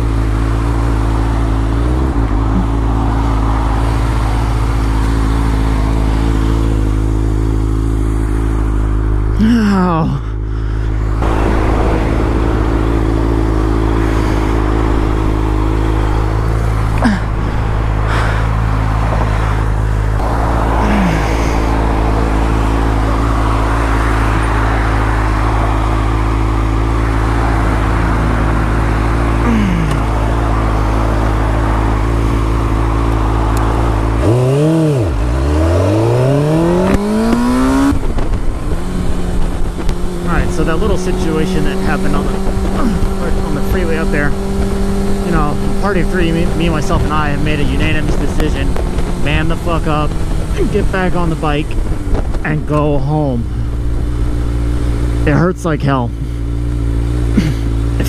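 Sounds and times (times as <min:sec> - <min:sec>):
motorcycle engine idling and revving: 0:00.0 - 0:58.0
vehicles passing: 0:00.0 - 0:58.0
wind noise on microphone: 0:36.8 - 0:40.3, 0:51.6 - 0:52.8.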